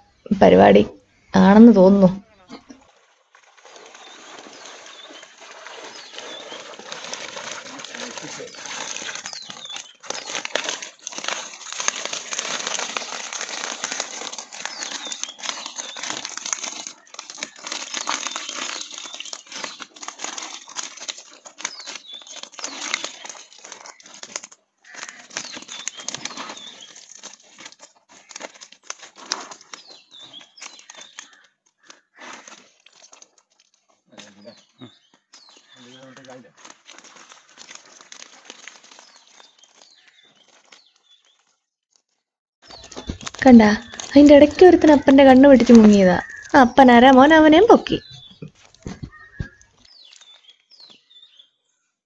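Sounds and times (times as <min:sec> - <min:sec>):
fish slapping on wet concrete: 0:02.7 - 0:34.2, 0:35.6 - 0:40.8.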